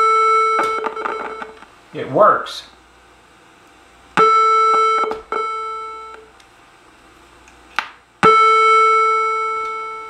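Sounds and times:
electronic door chime tone: 0.0s - 1.6s, 4.2s - 6.3s, 8.2s - 10.0s.

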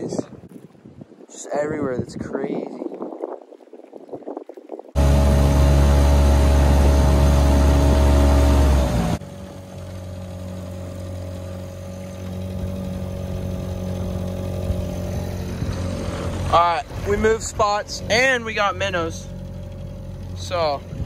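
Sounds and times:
outboard motor drone: 5.0s - 21.0s.

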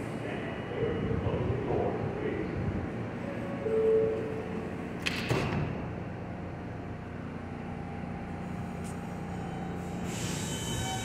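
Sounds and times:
train humming: 0.0s - 11.0s
subway doors banging shut: 3.6s - 6.6s, 9.2s - 11.0s.

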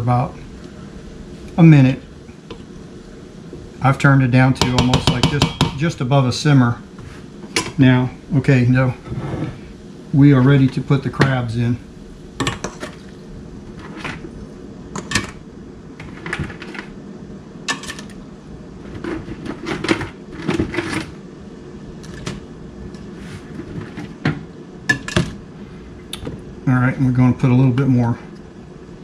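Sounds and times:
low steady hum: 0.0s - 29.0s
crab shells clattering in a pot: 15.0s - 15.4s, 17.7s - 18.2s.

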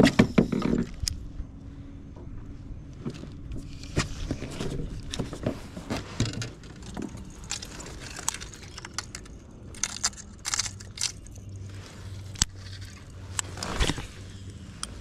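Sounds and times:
fishing gear clicks and rattles: 3.1s - 15.0s.

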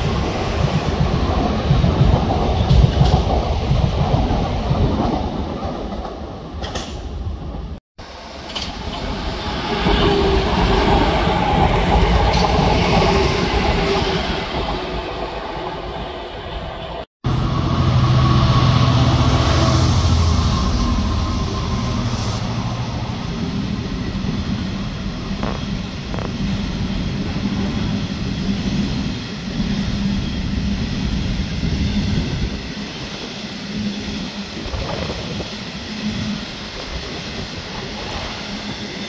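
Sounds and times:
diesel locomotive engine: 0.0s - 39.0s.

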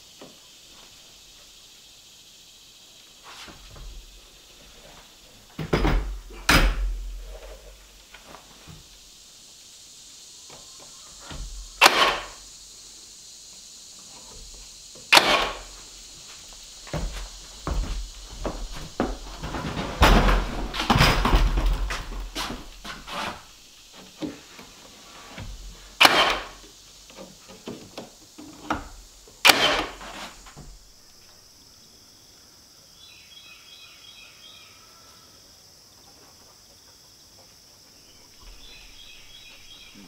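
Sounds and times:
steady high hiss: 0.0s - 40.0s
handling knocks and clatter: 4.8s - 8.9s, 16.8s - 30.8s
faint chirps: 7.2s - 18.8s, 30.4s - 40.0s
nail gun shots: 11.8s - 12.4s, 15.1s - 15.7s, 26.0s - 26.6s, 29.4s - 30.2s.

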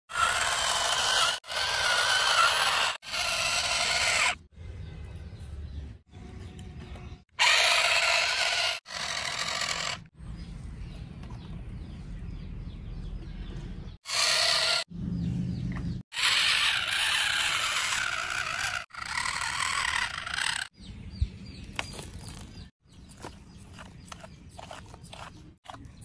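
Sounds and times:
toy motors and gears whirring: 0.1s - 4.4s, 7.4s - 10.1s, 14.0s - 14.9s, 16.1s - 20.7s, 23.1s - 26.0s.

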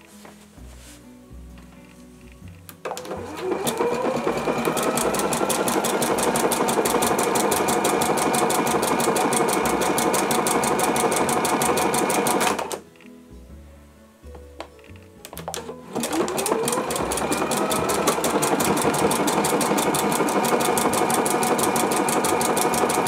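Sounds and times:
sewing machine stitching: 2.9s - 12.8s, 15.5s - 23.0s.

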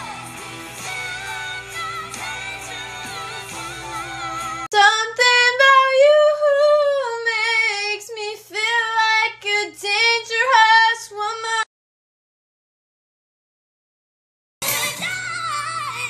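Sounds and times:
recorded pop music: 0.0s - 6.1s, 14.6s - 16.0s
woman singing unaccompanied: 0.8s - 11.7s.

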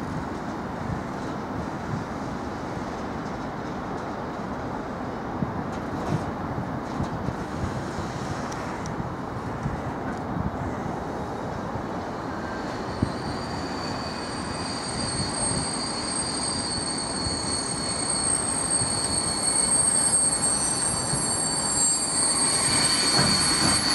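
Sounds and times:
freight train rumbling past: 0.0s - 23.9s
train wheels squealing: 11.9s - 23.9s.

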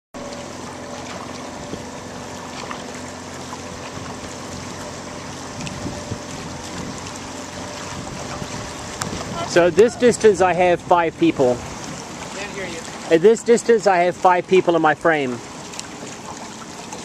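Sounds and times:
canoe paddle splashes: 0.2s - 17.0s
water rushing past boat: 0.2s - 17.0s
wind buffeting microphone: 1.5s - 2.1s, 3.8s - 13.1s.

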